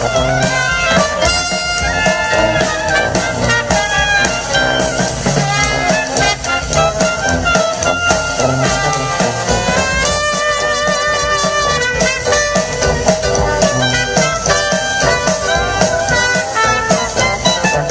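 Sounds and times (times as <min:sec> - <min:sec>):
drums: 0:00.0 - 0:17.9
jazz band playing swing: 0:00.0 - 0:17.9
trumpets: 0:00.0 - 0:17.9.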